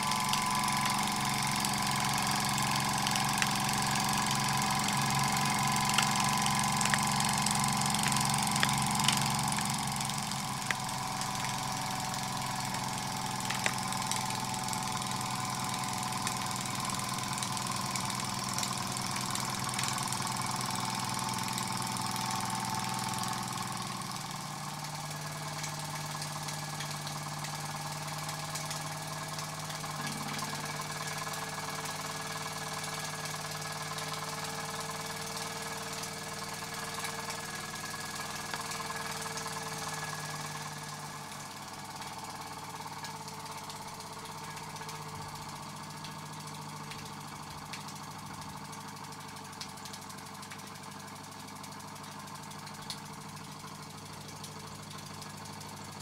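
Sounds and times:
sharp mechanical clicks: 0:00.1 - 0:20.7.

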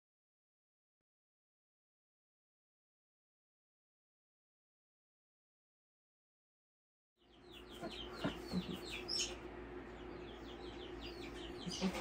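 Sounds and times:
chickens clucking and chirping: 0:07.2 - 0:12.0
steady low hum: 0:07.2 - 0:12.0.

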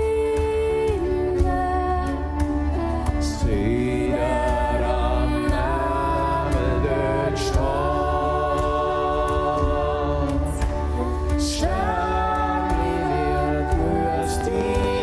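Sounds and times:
choir singing long chords: 0:03.3 - 0:15.0.

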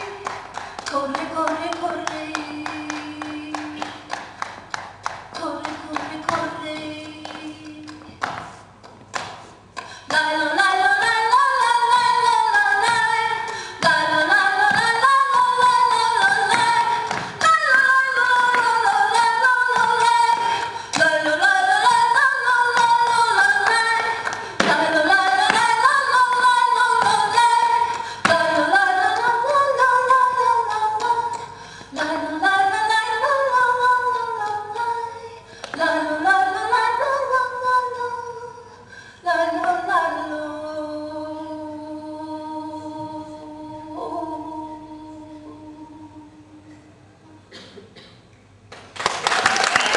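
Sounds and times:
woman singing unaccompanied: 0:00.0 - 0:04.5, 0:05.3 - 0:08.5, 0:10.0 - 0:46.9
singer breathing: 0:09.8 - 0:10.1, 0:13.4 - 0:13.8, 0:27.9 - 0:28.2, 0:31.4 - 0:32.0, 0:38.7 - 0:39.3.

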